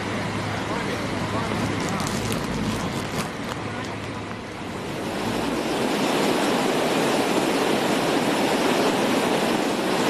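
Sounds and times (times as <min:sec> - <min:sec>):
floodwater rushing over rubble: 0:00.0 - 0:10.0.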